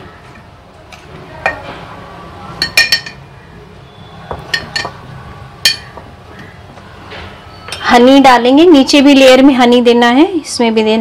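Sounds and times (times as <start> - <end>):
metal spoon clinking glass jar: 2.6 - 3.2, 4.4 - 5.0, 5.6 - 5.9.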